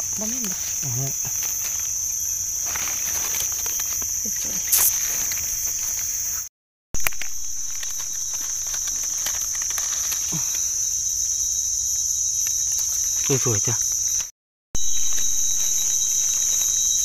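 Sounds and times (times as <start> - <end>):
insects droning: 0.0 - 17.0
hands rustling in dry leaves: 0.1 - 6.4, 7.0 - 11.0, 14.8 - 17.0.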